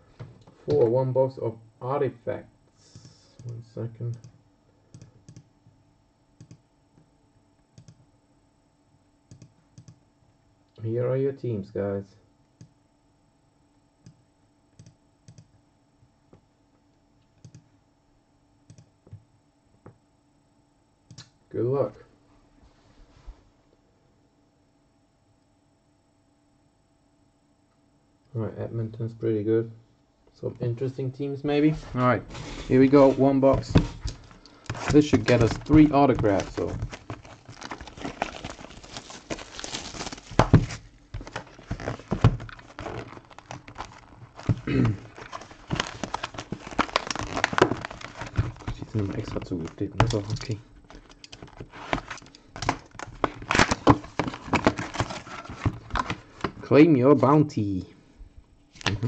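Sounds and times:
low electrical hum: 0.0 - 59.0
computer mouse clicks: 3.0 - 5.5, 6.4 - 6.6, 7.7 - 8.0, 9.3 - 10.0, 14.8 - 15.5, 17.3 - 17.7, 18.7 - 19.2
plastic shrink wrap rustling: 31.8 - 56.7
cardboard box handled: 32.3 - 48.8.

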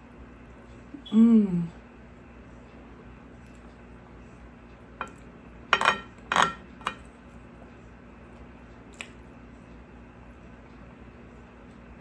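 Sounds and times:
spoon clinking and scraping a plate: 5.0 - 7.1.

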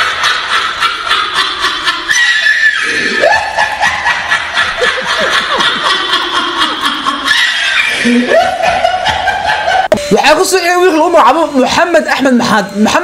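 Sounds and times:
man laughing into microphone: 0.0 - 10.0.

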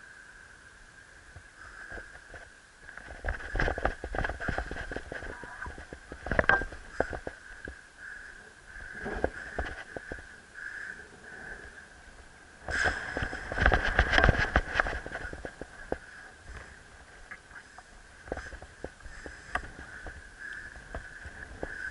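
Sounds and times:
thumps and rustles: 2.0 - 7.4, 12.7 - 16.7
wind buffeting microphone: 3.0 - 21.9.

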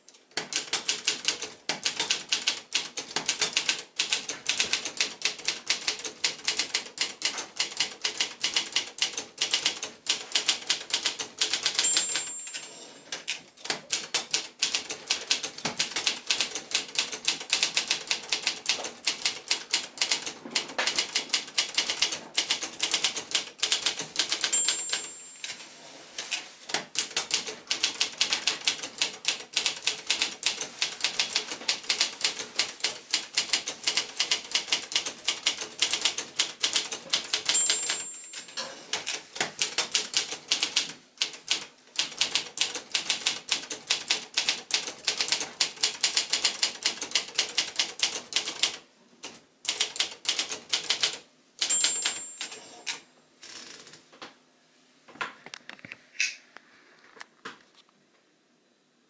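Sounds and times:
typewriter keys clacking: 0.1 - 25.6, 26.2 - 53.9
typewriter bell ding: 11.4 - 13.3, 23.8 - 25.6, 36.7 - 39.2, 51.6 - 53.0.

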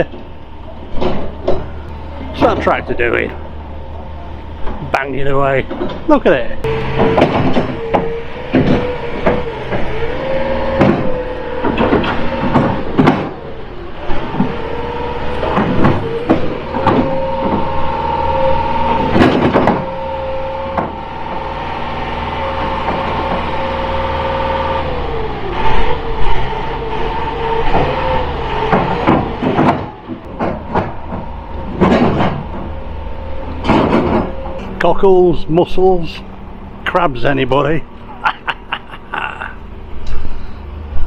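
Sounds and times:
tractor engine under load: 0.0 - 38.3
loud bangs and clanks: 4.6 - 34.8.

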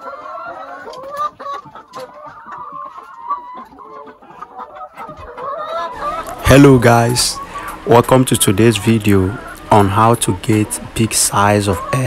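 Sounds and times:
hens clucking: 0.0 - 12.0.

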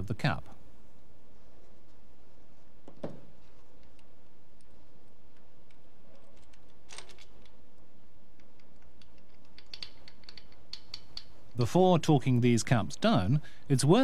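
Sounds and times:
metallic clicks and taps: 8.3 - 11.4.

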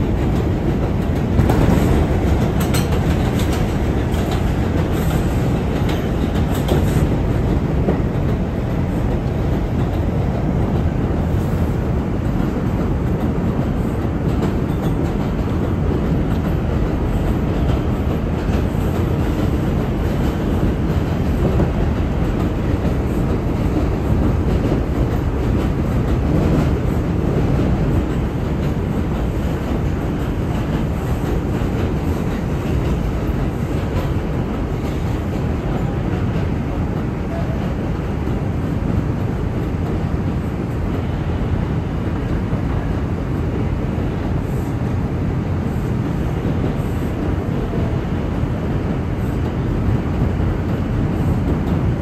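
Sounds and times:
subway car wheels on rails: 0.0 - 52.0.

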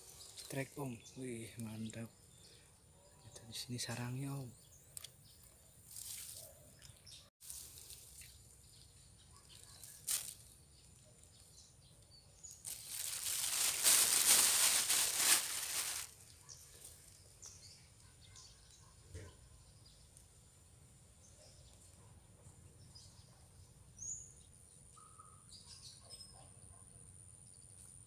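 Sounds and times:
rustling fluttering noise: 5.8 - 6.6, 9.5 - 10.6, 12.6 - 17.2.

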